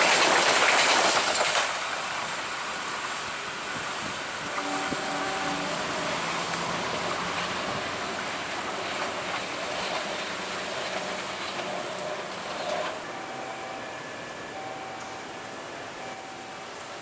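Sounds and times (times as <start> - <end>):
train wheels rumbling and rattling: 0.0 - 17.0.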